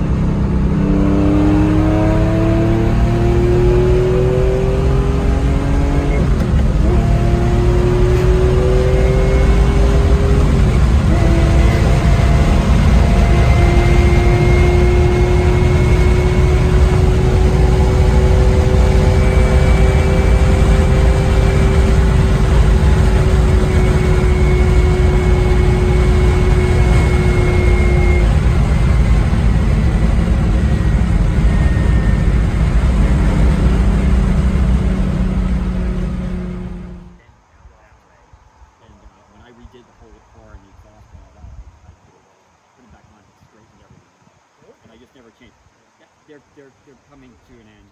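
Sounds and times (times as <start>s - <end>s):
car engine cruising: 0.0s - 44.0s, 44.6s - 47.9s
wind noise: 37.2s - 45.8s.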